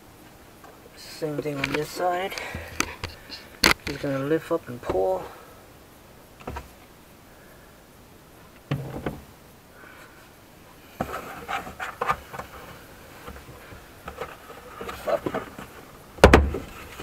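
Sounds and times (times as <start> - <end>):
plastic trim rubbing and clicking: 2.7 - 4.1.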